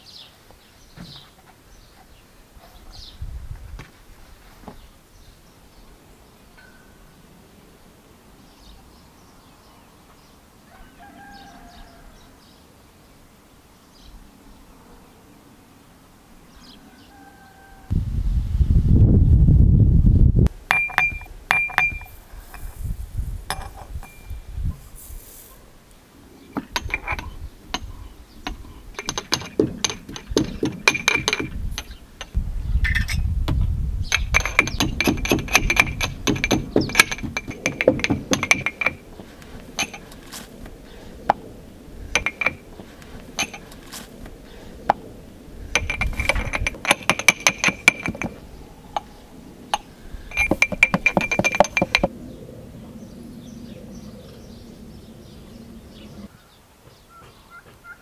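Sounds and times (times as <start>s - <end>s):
hand mill grinding seeds: 34.2s - 40.5s, 49.8s - 52.1s.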